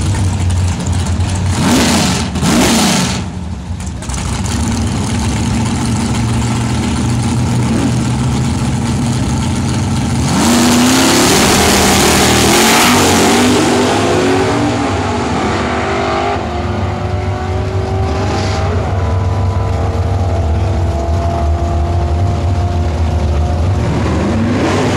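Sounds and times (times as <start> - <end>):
drag car engine accelerating: 0.0 - 24.9.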